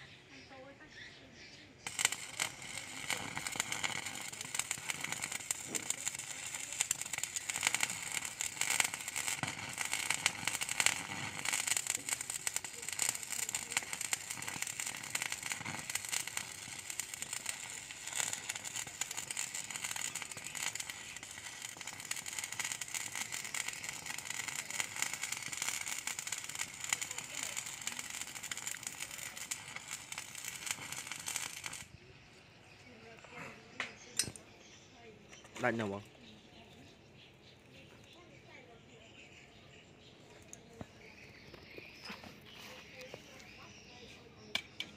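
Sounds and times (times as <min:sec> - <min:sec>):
welding arc crackling: 0:01.8 - 0:32.0.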